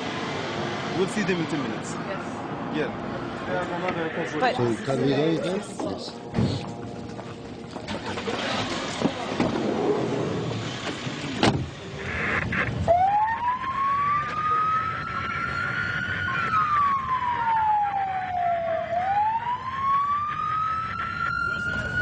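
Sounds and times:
ambulance siren wailing: 12.6s - 22.0s.

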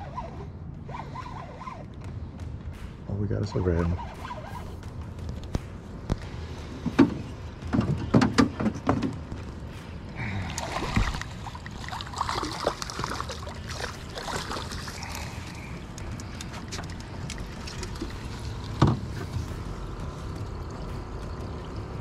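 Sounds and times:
water splashing against hull: 5.5s - 22.0s.

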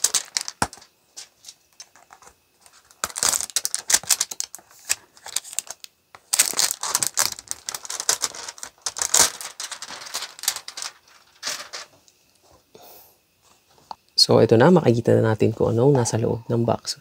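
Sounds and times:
plastic wrap crinkling: 0.0s - 12.0s.

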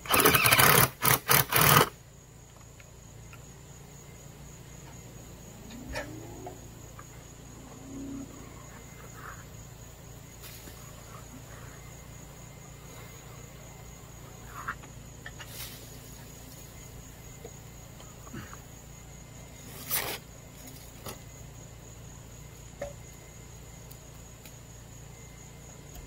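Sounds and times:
crickets trilling: 0.0s - 26.0s
low hum: 5.0s - 14.7s.

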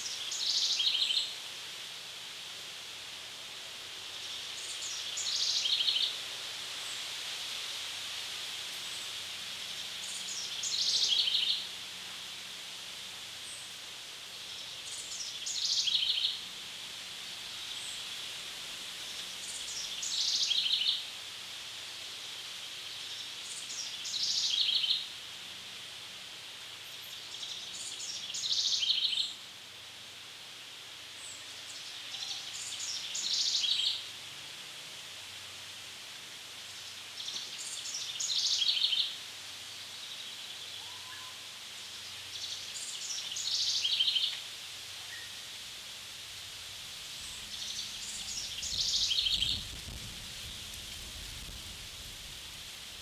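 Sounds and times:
songbird singing: 0.0s - 1.4s, 4.1s - 6.2s, 8.8s - 11.8s, 13.3s - 16.6s, 17.5s - 18.3s, 19.0s - 21.2s, 22.3s - 25.2s, 26.8s - 29.5s, 31.0s - 34.2s, 36.5s - 45.6s, 47.0s - 51.3s
steady high hiss: 0.0s - 53.0s.

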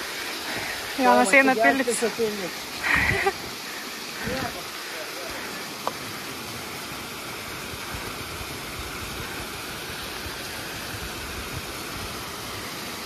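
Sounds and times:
wind buffeting microphone: 4.2s - 4.6s.

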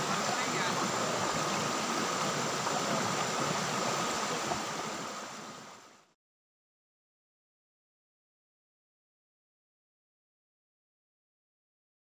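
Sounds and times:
river water rushing over rocks: 0.0s - 6.1s.

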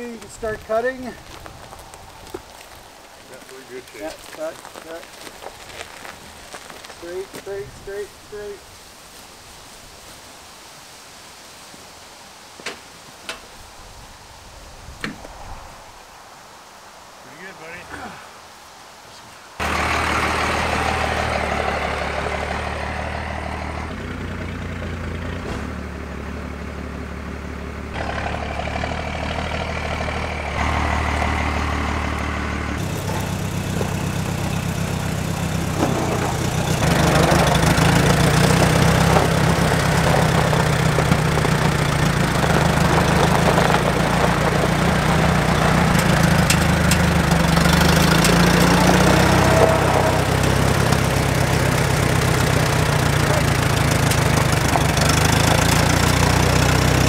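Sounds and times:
engines running: 19.6s - 57.0s
old tractor engine running: 19.6s - 57.0s.

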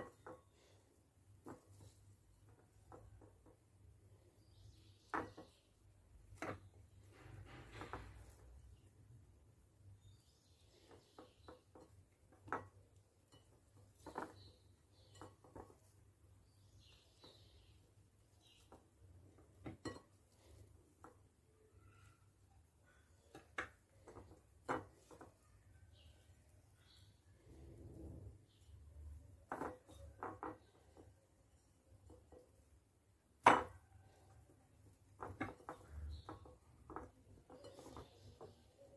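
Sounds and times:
hands rubbing food in a bowl: 0.0s - 3.8s
hands mixing food in a bowl: 0.0s - 38.9s.

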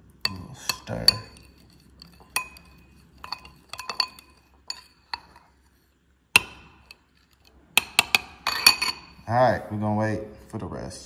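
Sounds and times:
metal spoon clinking on glass bowl: 0.2s - 5.6s, 6.4s - 9.2s.

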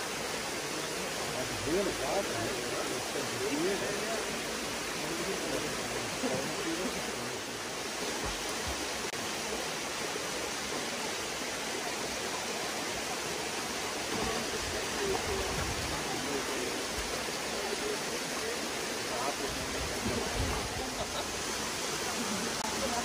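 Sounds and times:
faint voices: 0.0s - 8.5s, 13.9s - 23.0s
waterfall rushing: 0.0s - 23.0s.

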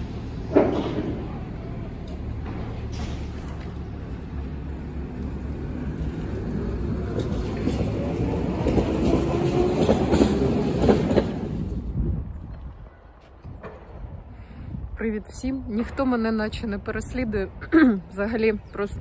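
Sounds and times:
tram rumbling past: 0.0s - 19.0s
wheels clacking over rail joints: 0.3s - 11.9s.

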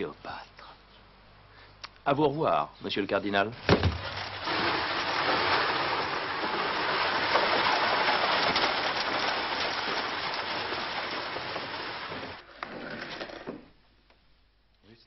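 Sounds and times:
wheels and hooves on gravel: 3.9s - 12.5s.

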